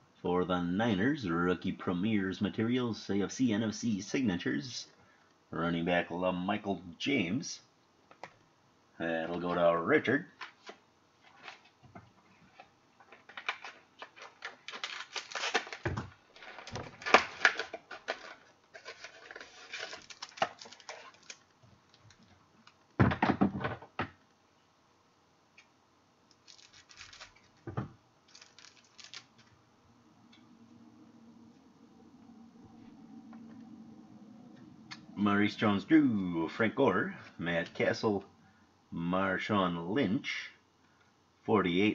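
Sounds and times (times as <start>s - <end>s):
cards rustling and sliding: 12.5s - 22.8s, 26.3s - 27.6s, 28.3s - 29.5s.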